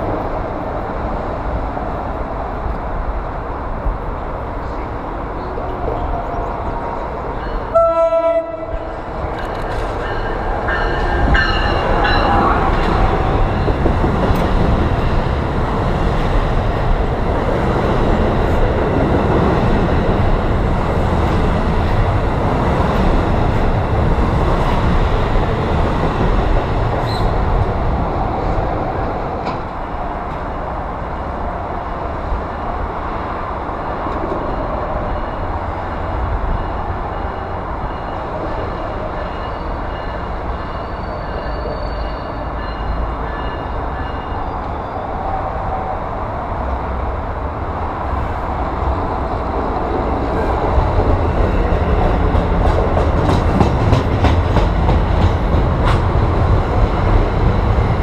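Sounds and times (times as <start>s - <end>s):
train wheels rumbling on rail: 0.0s - 58.0s
train horn blast: 7.7s - 9.0s.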